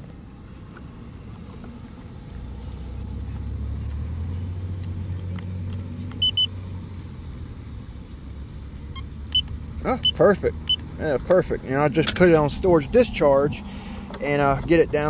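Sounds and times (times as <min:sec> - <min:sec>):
short high beeps: 0:06.2 - 0:06.5, 0:09.0 - 0:10.8.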